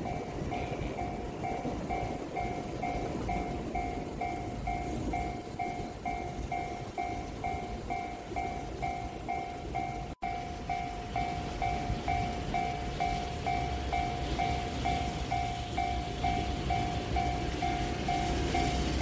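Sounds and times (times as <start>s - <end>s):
low rumble of train: 0.0s - 19.0s.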